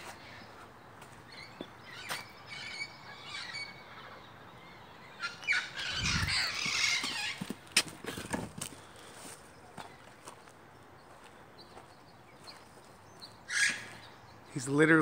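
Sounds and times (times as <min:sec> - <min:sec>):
parrots squawking: 0:01.9 - 0:04.2, 0:05.2 - 0:07.6, 0:13.5 - 0:14.0.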